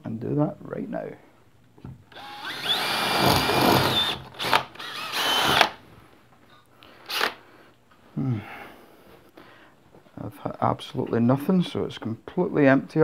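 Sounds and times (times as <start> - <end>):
cordless drill boring into plaster: 2.1 - 5.8.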